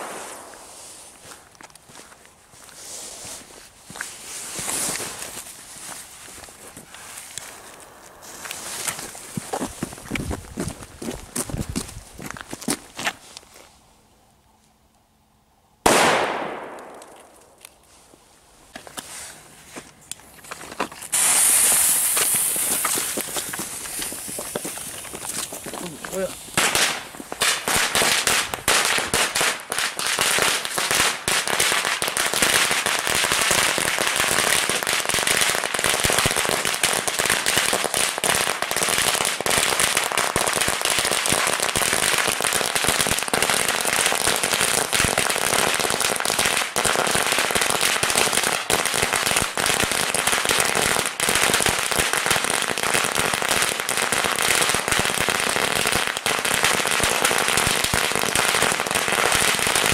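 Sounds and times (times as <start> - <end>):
firecracker string bangs: 15.9 - 17.4.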